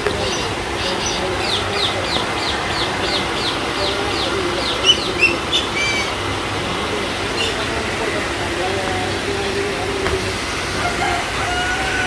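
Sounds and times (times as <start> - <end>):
small waterfall splashing: 0.0 - 12.0
bird chirping: 0.1 - 6.2.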